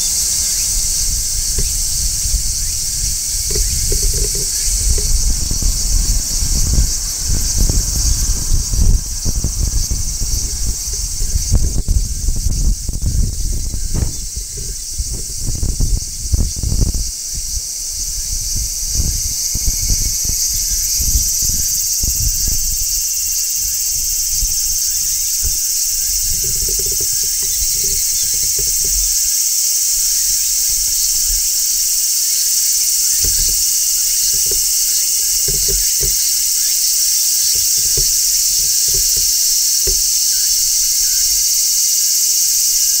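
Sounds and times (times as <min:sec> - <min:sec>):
low thumps and rumble: 0:00.0 - 0:32.0, 0:32.6 - 0:41.5
cicada buzzing: 0:00.0 - 0:43.0
soft knocks: 0:00.5 - 0:06.2, 0:23.9 - 0:31.6, 0:33.1 - 0:41.4.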